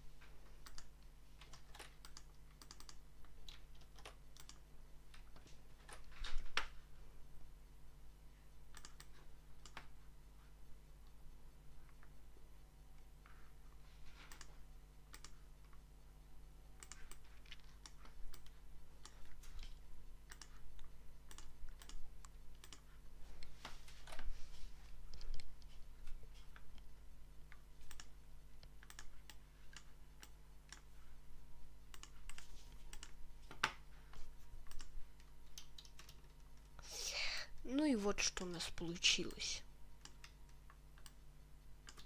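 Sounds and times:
faint steady hum: 0.0 - 42.0
keyboard and mouse clicks: 0.6 - 6.8, 8.7 - 9.9, 14.2 - 15.8, 16.8 - 24.3, 25.1 - 26.9, 27.5 - 30.9, 31.9 - 36.8, 40.0 - 41.2, 41.8 - 42.0.

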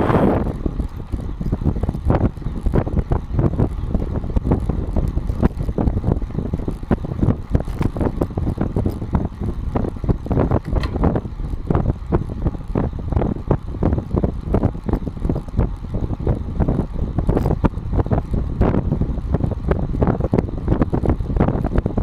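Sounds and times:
wind buffeting: 0.0 - 22.0
small knocks and rattles: 10.5 - 11.2.

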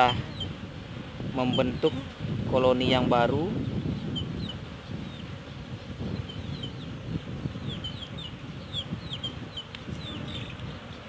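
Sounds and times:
honeybees humming: 0.0 - 11.0
high falling bird chirps: 3.6 - 11.0.

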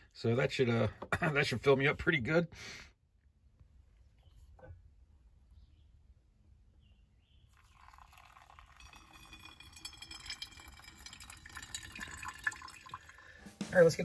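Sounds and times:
water pouring into coffee filter: 7.5 - 13.4.

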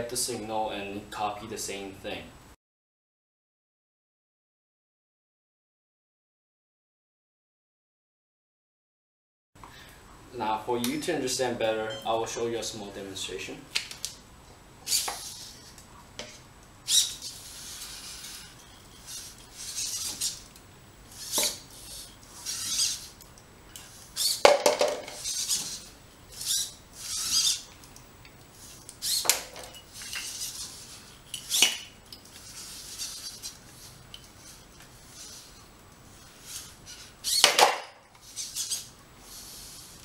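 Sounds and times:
servo motors whirring: 14.9 - 15.7, 16.9 - 20.5, 21.1 - 23.2, 23.8 - 24.4, 25.1 - 27.7, 28.6 - 29.4, 30.0 - 31.7, 32.4 - 37.4, 38.2 - 40.0.

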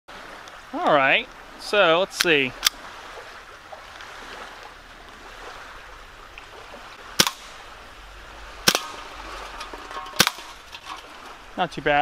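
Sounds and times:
air pistol shots: 7.2 - 7.6, 8.6 - 9.0, 10.2 - 10.5.

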